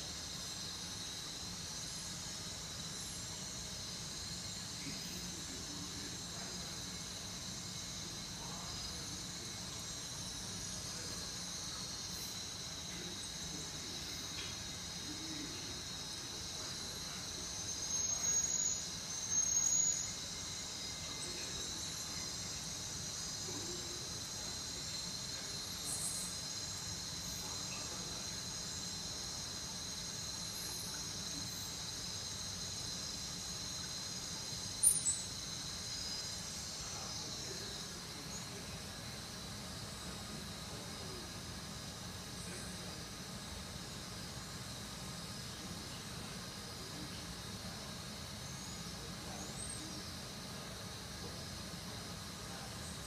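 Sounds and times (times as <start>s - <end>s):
insects chirring: 0.0s - 53.0s.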